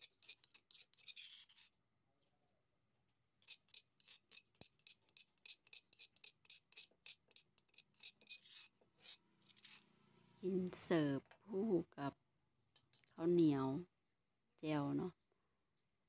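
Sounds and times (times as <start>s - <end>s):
metal spoon tapping stone mortar: 3.4s - 9.7s, 12.8s - 13.2s.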